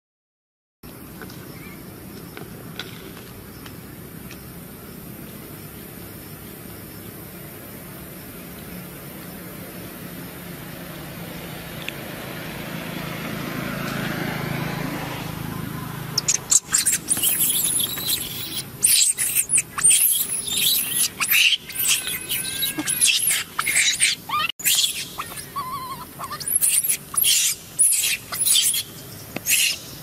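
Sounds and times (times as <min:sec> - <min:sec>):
baby monkey shrieking: 0:16.1 - 0:29.9.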